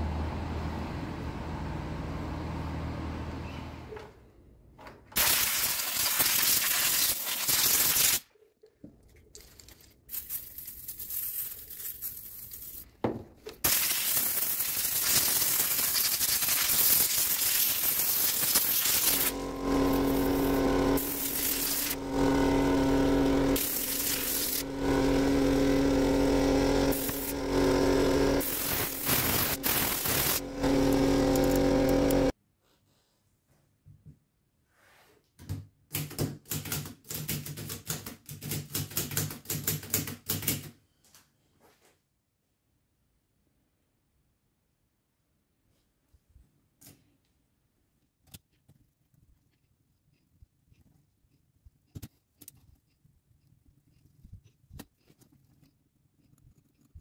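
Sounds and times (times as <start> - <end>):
steady hum: 19.0 - 32.3
compressed air blow gun hissing: 23.6 - 24.6, 28.4 - 32.2.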